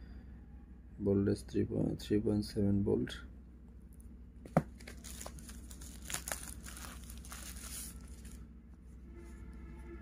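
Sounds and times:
plastic bag crinkling: 4.7s - 8.4s.

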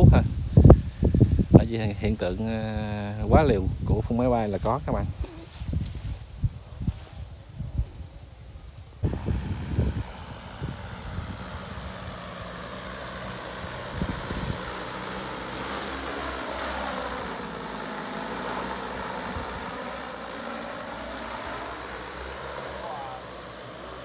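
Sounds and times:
drone propellers whirring: 8.9s - 24.0s.

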